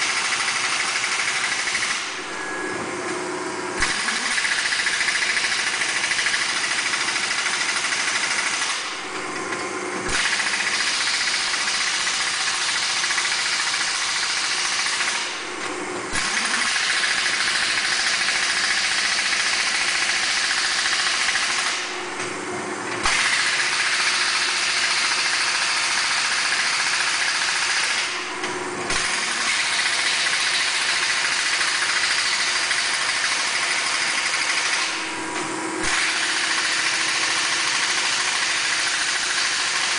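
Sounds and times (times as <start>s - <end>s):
shop machinery hissing: 9.7s - 39.9s.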